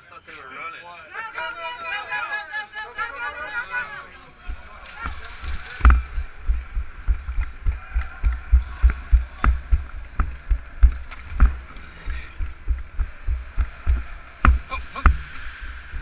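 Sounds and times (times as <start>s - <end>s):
running footsteps: 1.7s - 16.0s
sharp clicks: 4.6s - 11.8s.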